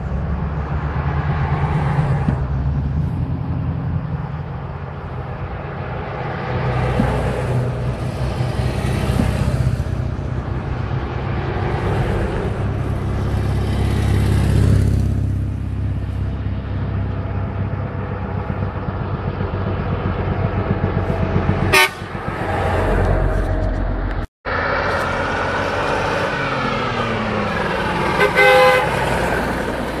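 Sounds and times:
motorcycle engine: 0.0s - 30.0s
truck engines passing: 0.0s - 30.0s
vehicle horn toot: 21.6s - 22.2s, 28.2s - 29.0s.

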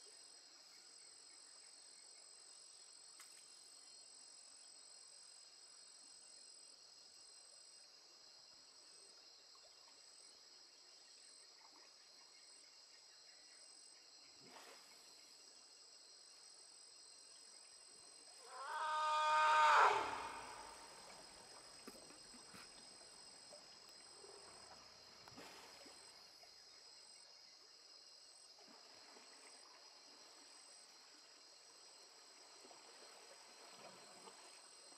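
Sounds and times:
shrill insect chorus: 18.3s - 21.6s
elephant trumpeting: 18.4s - 21.1s.

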